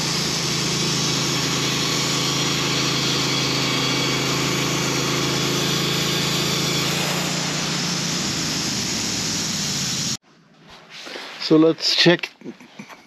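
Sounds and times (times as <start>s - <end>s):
bandsaw mill engine running: 0.0s - 10.2s
saw blade cutting log: 0.0s - 10.2s.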